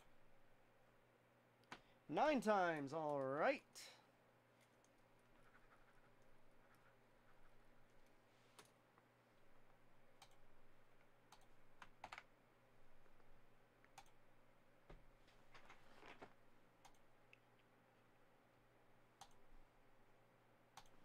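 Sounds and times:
keyboard and mouse clicks: 0:10.2 - 0:10.5, 0:11.3 - 0:12.3, 0:13.8 - 0:14.2, 0:19.2 - 0:19.5, 0:20.8 - 0:21.0.

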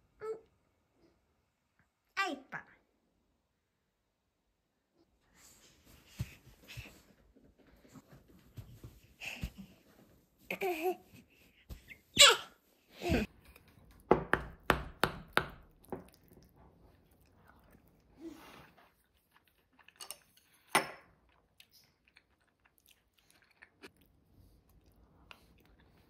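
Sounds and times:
wooden spoon knocking ceramic bowl: 0:14.1 - 0:15.7.

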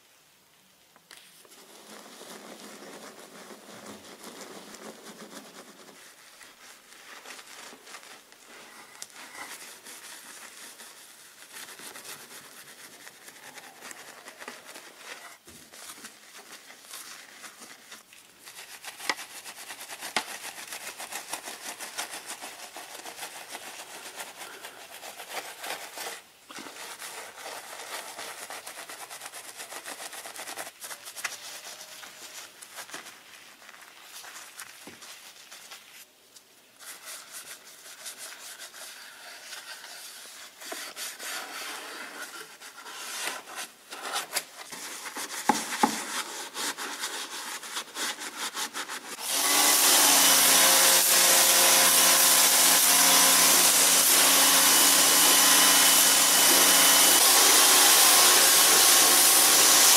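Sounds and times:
wash mitt scrubbing wet car: 0:26.6 - 0:36.1.

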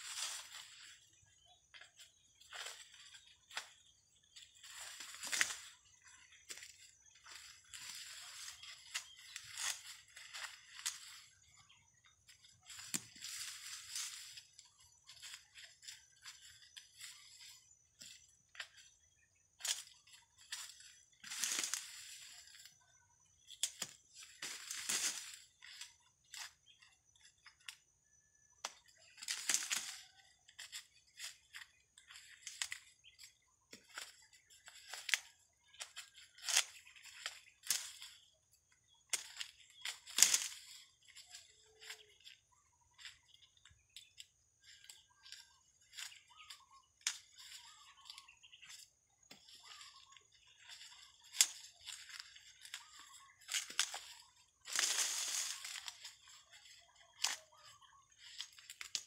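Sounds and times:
dry corn husks crackling and tearing: 0:01.8 - 0:11.6, 0:12.2 - 0:22.8, 0:23.4 - 0:27.8, 0:28.6 - 0:42.4, 0:43.0 - 0:59.0
corn ears breaking off stalks: 0:29.2 - 0:30.0, 0:39.1 - 0:40.6.

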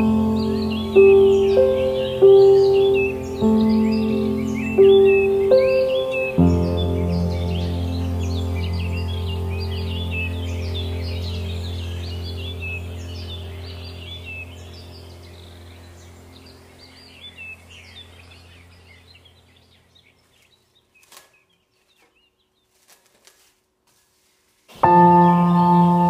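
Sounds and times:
ambient music with bell-like tones: 0:00.0 - 0:16.8
soft ambient music: 0:00.0 - 0:20.0, 0:24.8 - 0:26.0
birdsong chirping: 0:00.0 - 0:23.5, 0:24.7 - 0:26.0.

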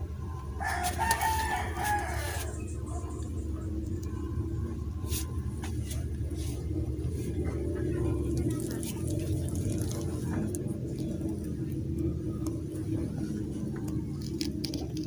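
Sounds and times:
low steady hum: 0:00.0 - 0:15.0
rooster crowing: 0:00.6 - 0:03.0.

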